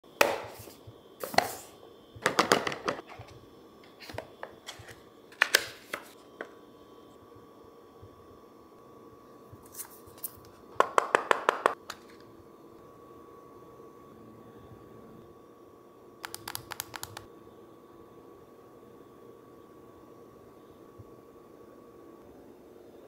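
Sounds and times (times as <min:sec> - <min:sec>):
sharp plastic clicks: 0:16.2 - 0:17.3.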